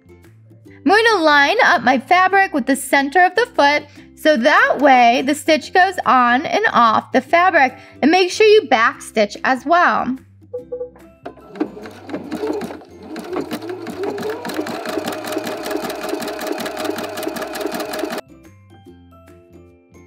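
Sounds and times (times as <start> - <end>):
sewing machine running: 11.4 - 18.2.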